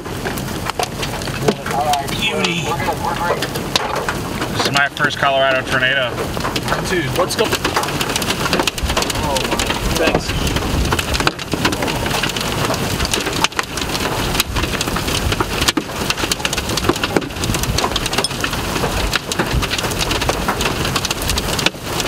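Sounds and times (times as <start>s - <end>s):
raindrops tapping near microphone: 0.0s - 22.0s.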